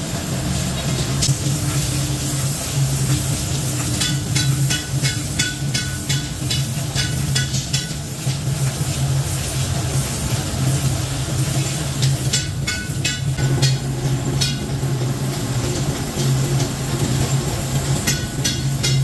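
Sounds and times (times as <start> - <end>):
machinery humming: 0.0 - 19.0
metallic clanks: 12.0 - 19.0.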